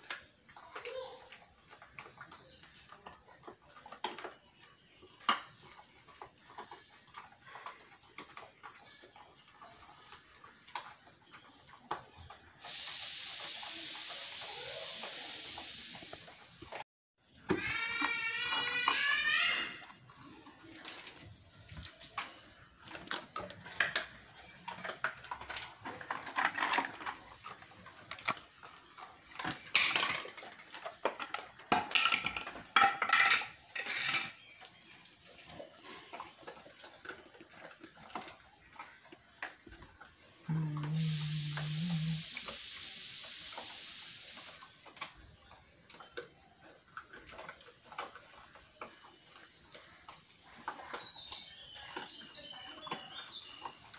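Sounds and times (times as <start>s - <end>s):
steady hiss: 12.6s - 16.4s, 40.8s - 44.7s
dog crunching bones: 17.3s - 40.4s, 44.8s - 53.9s.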